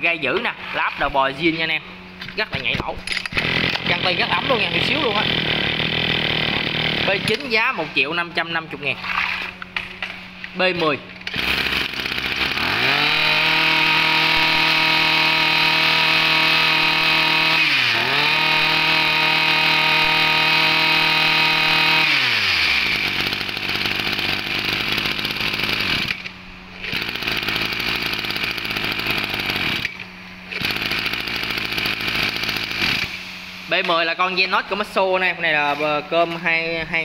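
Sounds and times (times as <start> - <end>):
brush cutter engine revving: 3.1 - 7.8, 11.3 - 33.8.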